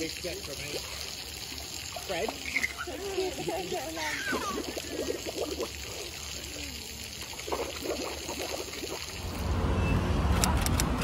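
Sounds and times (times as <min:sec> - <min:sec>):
pool water lapping and splashing: 0:00.0 - 0:09.4
low rumble of road traffic: 0:05.2 - 0:11.0.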